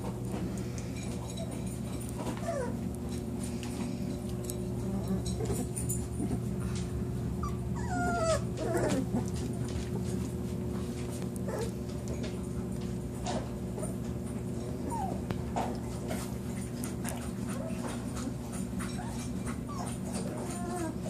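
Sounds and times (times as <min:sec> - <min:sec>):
steady low hum: 0:00.0 - 0:21.0
puppies whimpering: 0:02.2 - 0:03.4, 0:07.4 - 0:09.8, 0:11.4 - 0:12.2, 0:14.6 - 0:15.3, 0:16.9 - 0:21.0.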